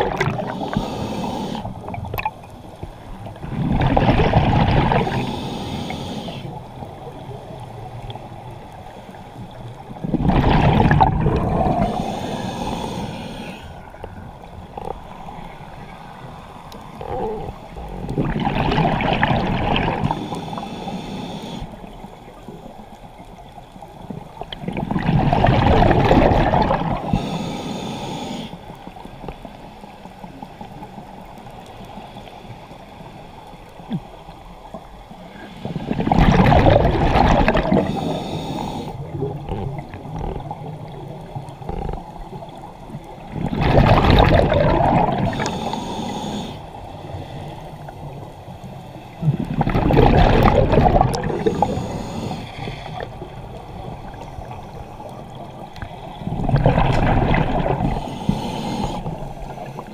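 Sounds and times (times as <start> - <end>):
underwater exhale bubbles gurgling: 0.0 - 31.5, 32.1 - 59.9
quiet watery hiss: 0.0 - 59.9.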